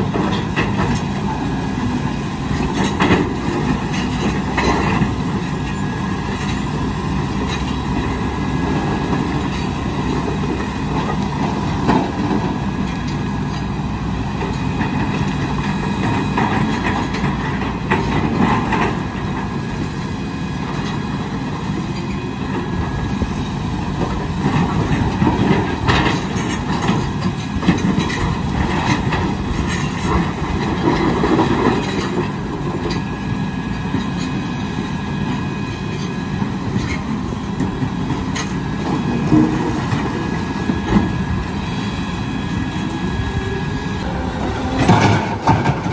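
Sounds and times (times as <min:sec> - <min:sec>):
excavator diesel engine: 0:00.0 - 0:45.9.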